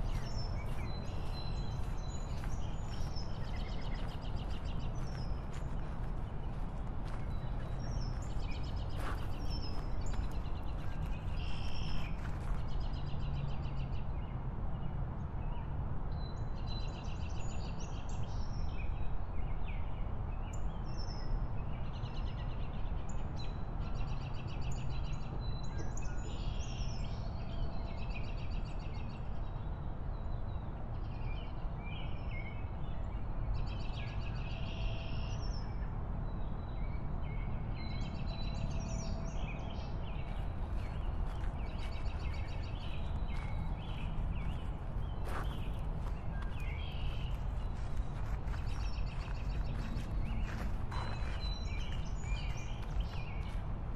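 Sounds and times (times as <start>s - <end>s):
birds chirping and trilling: 0.0s - 12.3s, 38.0s - 53.6s
wind and road noise rumble: 0.0s - 53.9s.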